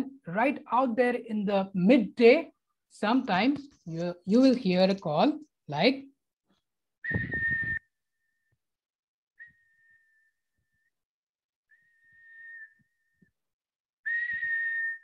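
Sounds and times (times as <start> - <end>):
person whistling bird call: 7.0 - 7.9, 9.4 - 10.8, 11.7 - 13.2, 14.1 - 15.0.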